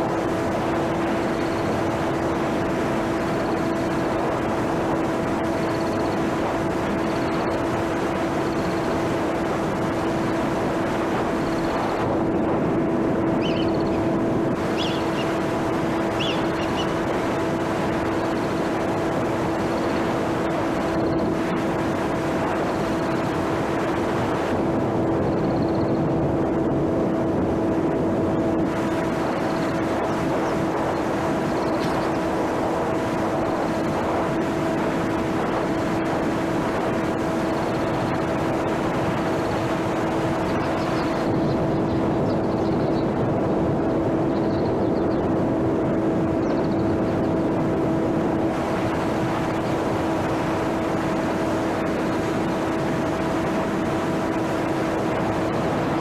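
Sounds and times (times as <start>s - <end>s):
electric motor and propeller whine: 0.0s - 56.0s
wind noise: 0.0s - 56.0s.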